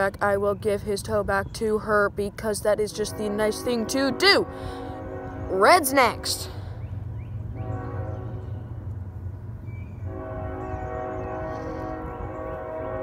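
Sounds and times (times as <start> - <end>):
train horn blasts: 2.9 - 6.8, 7.5 - 8.9, 10.0 - 13.0.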